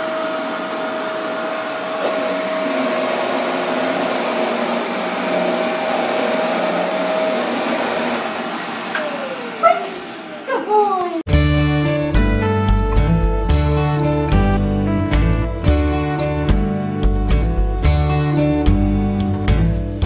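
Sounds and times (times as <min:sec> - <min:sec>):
vacuum motor winding down: 0:00.0 - 0:10.7
vacuum cleaner running: 0:00.0 - 0:11.0.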